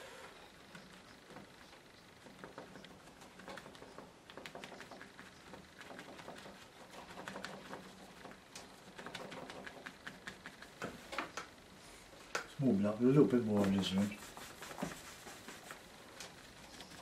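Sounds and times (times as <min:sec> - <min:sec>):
sponge dabbing paint: 0:02.2 - 0:11.2, 0:12.8 - 0:17.0.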